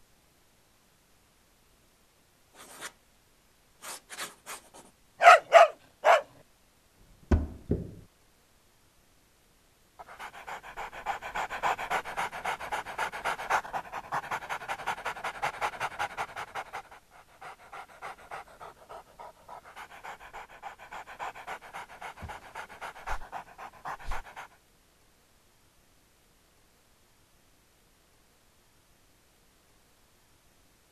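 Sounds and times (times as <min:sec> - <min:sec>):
low thumps: 0:07.2 - 0:08.1
dog panting: 0:10.0 - 0:24.6.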